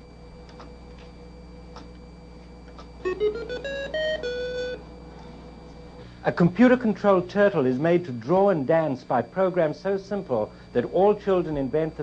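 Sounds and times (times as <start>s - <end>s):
low steady hum: 0.0s - 12.0s
electronic tone tune: 1.3s - 6.1s.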